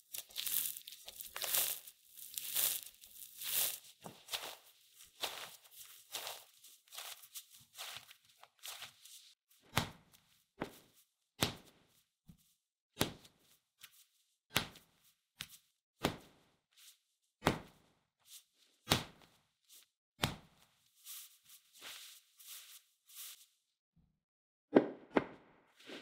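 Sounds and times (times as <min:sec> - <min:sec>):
dough slapping on cutting board: 0:18.9 - 0:19.3.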